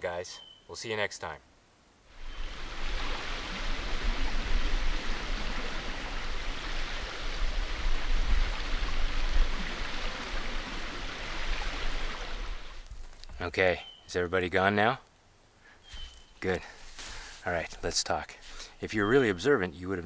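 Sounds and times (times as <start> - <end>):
river rushing: 2.1 - 12.8.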